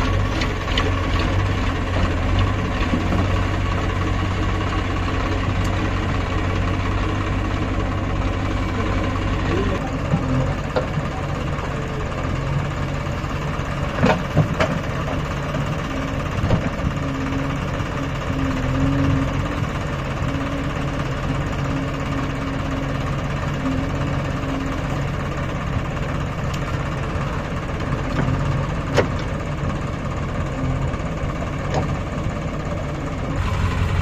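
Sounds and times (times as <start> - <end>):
tractor diesel engine running: 0.0 - 34.0
sharp engine knocks: 13.9 - 15.2, 28.1 - 29.3.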